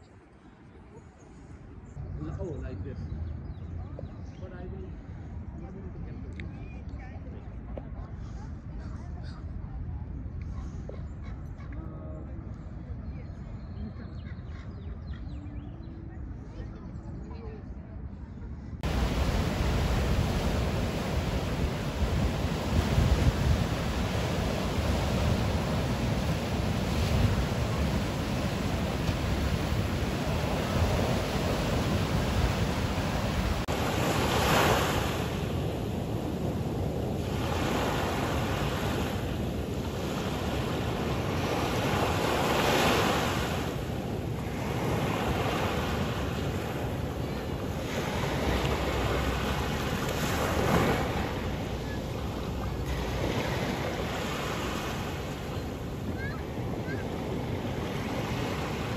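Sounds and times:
waves washing onto sand: 0:18.8 - 0:58.9.

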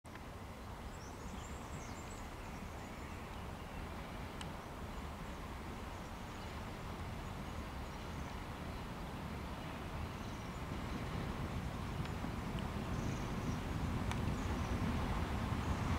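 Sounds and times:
diesel locomotive rumble: 0:03.9 - 0:15.9.

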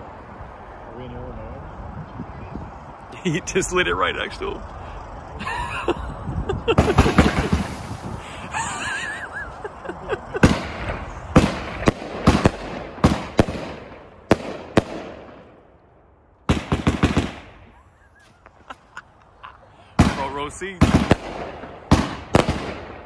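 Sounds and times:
firework crackling: 0:06.6 - 0:15.6, 0:16.5 - 0:23.0
firework bangs: 0:06.6 - 0:15.7, 0:16.4 - 0:18.9, 0:19.9 - 0:23.0
firework cracks: 0:06.6 - 0:15.8, 0:16.5 - 0:17.9, 0:20.0 - 0:23.0.

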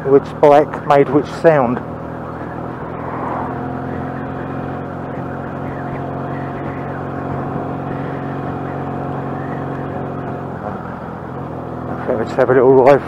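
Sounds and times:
motorcycle engine cruising: 0:00.0 - 0:13.0.

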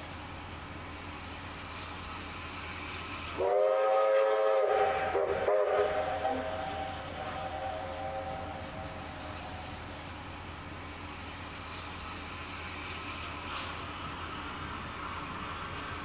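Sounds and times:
locomotive whistle: 0:03.4 - 0:09.8.

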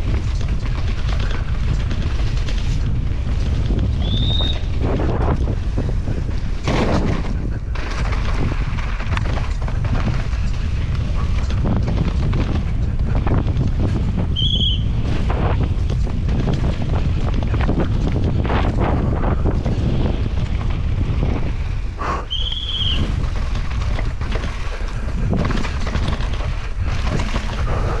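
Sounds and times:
bike knocking and rattling: 0:00.0 - 0:28.0
wind buffeting microphone: 0:00.0 - 0:28.0
high squeaks: 0:22.3 - 0:23.1.

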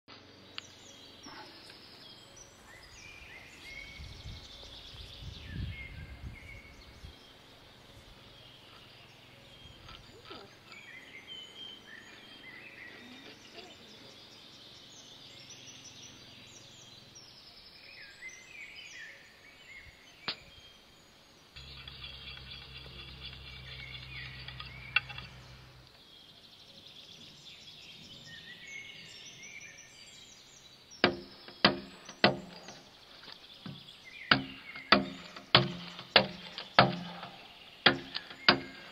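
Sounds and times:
birds singing: 0:00.1 - 0:38.9.

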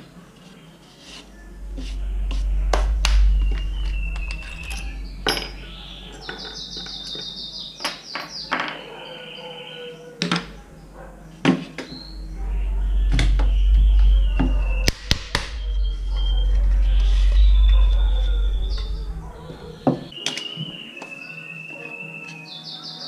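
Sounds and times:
low rumble: 0:01.3 - 0:07.6, 0:10.4 - 0:20.1.

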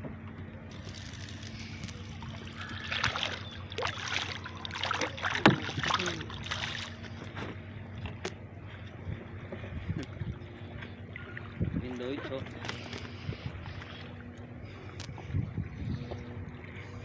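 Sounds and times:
low hum: 0:00.0 - 0:17.0
fish splashing in water: 0:00.7 - 0:07.3.

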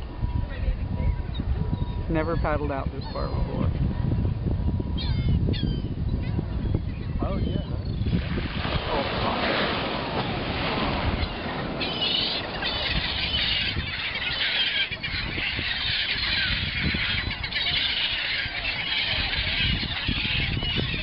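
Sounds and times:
wind rumble on microphone: 0:00.0 - 0:21.0
seagulls screeching: 0:04.9 - 0:07.7, 0:10.1 - 0:21.0.

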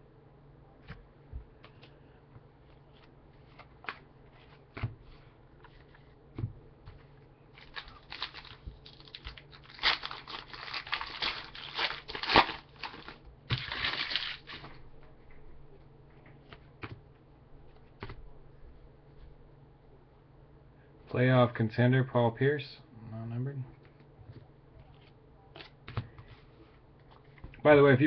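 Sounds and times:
wrapper tearing and crinkling: 0:07.6 - 0:14.8.

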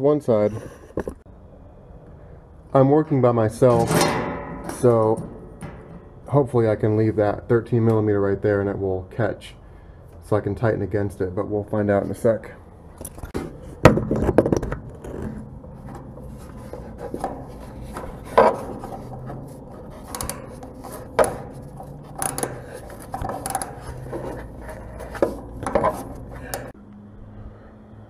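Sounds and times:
wrench clicking on metal nut: 0:21.2 - 0:24.0.

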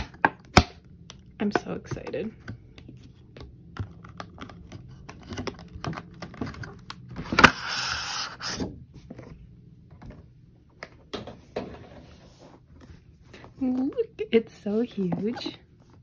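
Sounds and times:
packaging clicks and rustles: 0:03.6 - 0:07.4.

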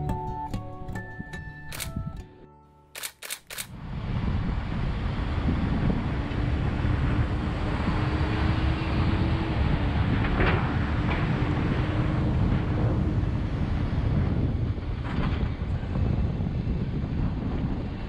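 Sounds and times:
sharp clicks: 0:01.7 - 0:02.2, 0:03.0 - 0:03.7
wind buffeting microphone: 0:03.6 - 0:18.0.

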